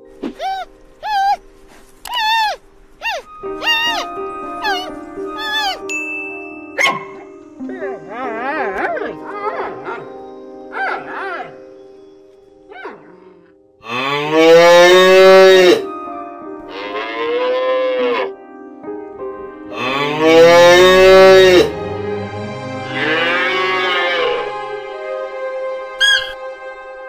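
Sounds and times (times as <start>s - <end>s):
cattle mooing: 12.8s - 15.8s, 16.7s - 18.3s, 19.7s - 21.8s, 22.8s - 24.5s.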